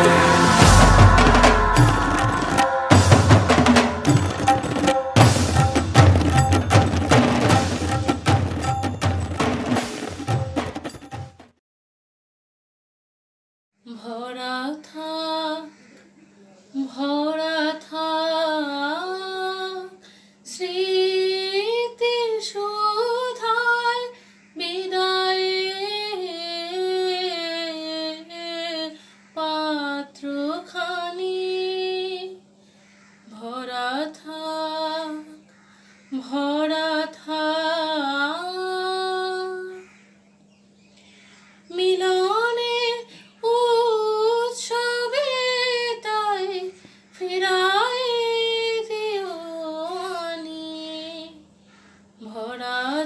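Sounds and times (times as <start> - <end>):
woman singing solo: 0.0 - 5.3.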